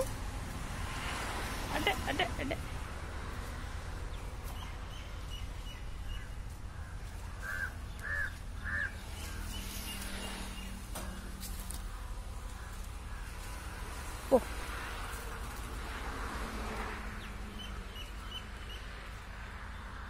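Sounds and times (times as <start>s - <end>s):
crow cawing: 6.7s - 9.4s, 11.8s - 14.6s.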